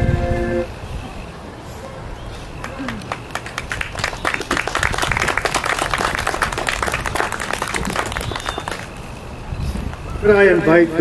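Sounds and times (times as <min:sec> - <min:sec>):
people applauding: 0:02.6 - 0:09.0.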